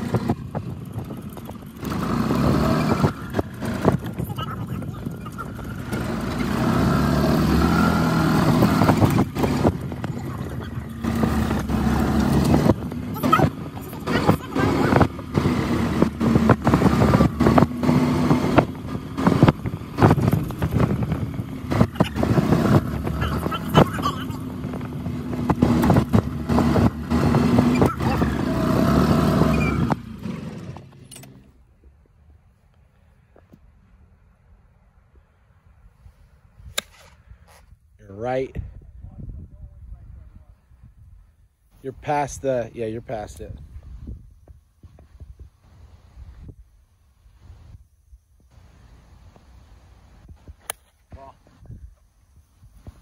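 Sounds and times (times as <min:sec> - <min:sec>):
rattles and knocks from bumps: 0:00.0 - 0:31.4
golf cart motor hum: 0:00.0 - 0:33.7
tyres rolling and wind noise: 0:00.0 - 0:53.0.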